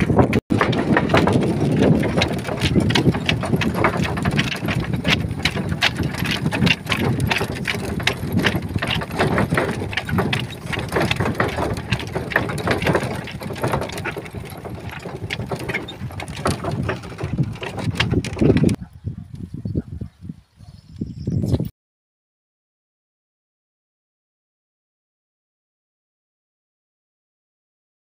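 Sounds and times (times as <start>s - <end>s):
cart rumbling over dirt track: 0.0s - 18.9s
chain traces rattling and clinking: 0.1s - 18.8s.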